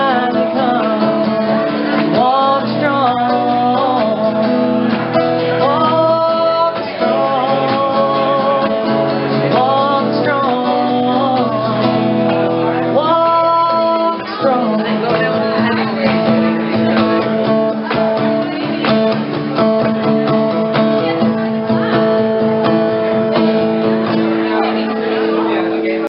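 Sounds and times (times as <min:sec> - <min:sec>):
woman singing: 0:00.0 - 0:04.7, 0:05.4 - 0:08.8, 0:09.4 - 0:12.1, 0:13.0 - 0:16.2
strummed acoustic guitar: 0:00.0 - 0:26.0.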